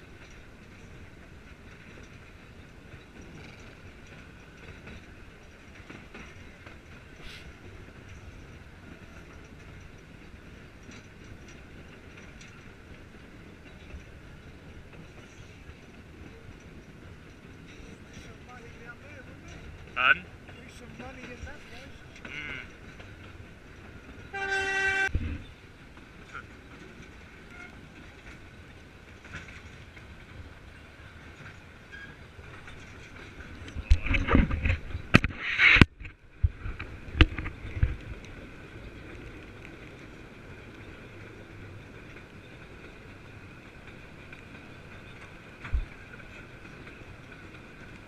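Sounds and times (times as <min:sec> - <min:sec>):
train running noise: 0:00.0 - 0:48.0
steam locomotive whistle: 0:24.3 - 0:25.1.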